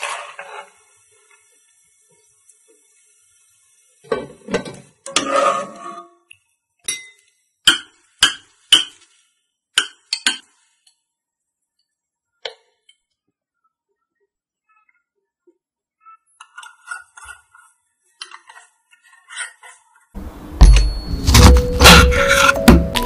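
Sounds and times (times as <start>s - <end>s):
spoon scraping and stirring: 0.0s - 0.8s, 5.1s - 6.1s, 16.4s - 20.3s.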